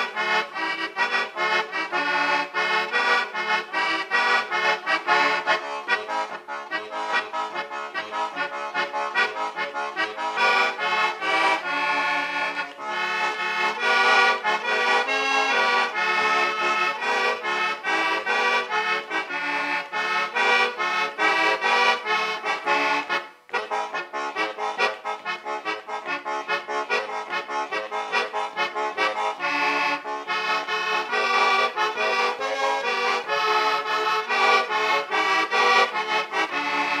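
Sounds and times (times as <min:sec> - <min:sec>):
instrumental music with fast notes: 0:00.0 - 0:37.0.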